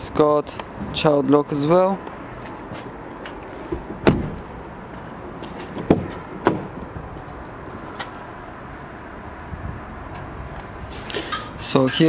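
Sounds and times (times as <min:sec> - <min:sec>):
car door handle and latch clunks: 0:03.7 - 0:04.4.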